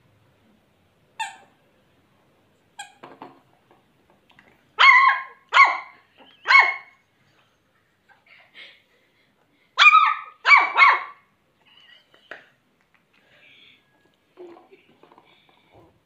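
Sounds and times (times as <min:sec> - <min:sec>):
puppy yipping and barking: 0:04.8 - 0:07.0, 0:09.8 - 0:11.3.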